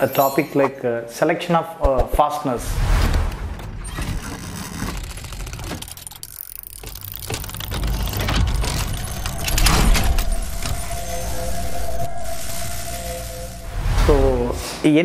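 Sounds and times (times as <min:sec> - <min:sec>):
metallic clinks: 0:00.0 - 0:00.8
steady held tone: 0:08.7 - 0:14.7.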